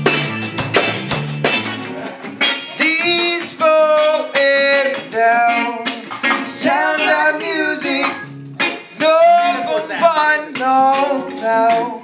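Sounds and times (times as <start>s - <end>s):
electric guitar: 0.0s - 12.0s
live band playing: 0.0s - 12.0s
man singing: 2.7s - 12.0s.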